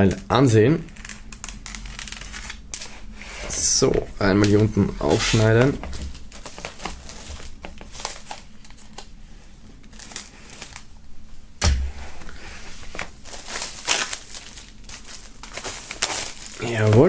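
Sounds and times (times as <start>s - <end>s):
plastic shrink-wrap crinkling: 0.8s - 3.2s, 4.4s - 9.2s, 9.8s - 10.9s, 12.1s - 17.0s
sharp knock: 11.6s - 12.1s.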